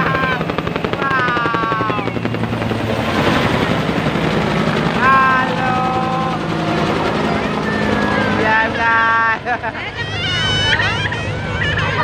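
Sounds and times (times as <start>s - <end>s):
helicopter engine hum: 0.0s - 12.0s
helicopter rotor chopping: 0.0s - 12.0s.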